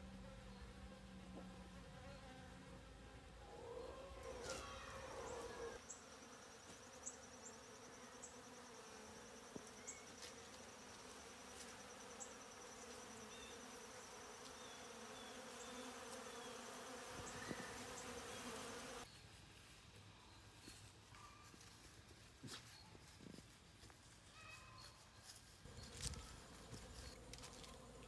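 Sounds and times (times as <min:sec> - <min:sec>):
bees buzzing: 0:04.1 - 0:19.1.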